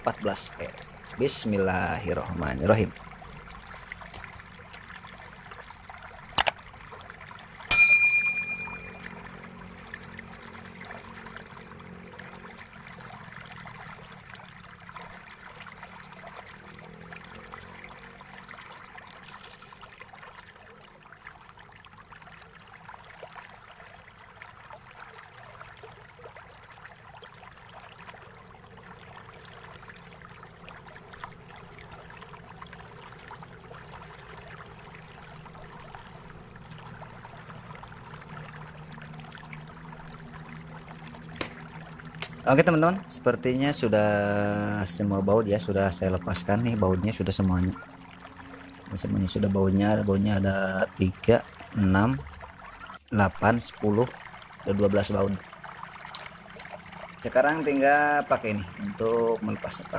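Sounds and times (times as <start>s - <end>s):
metallic ding: 7.7s - 9.0s.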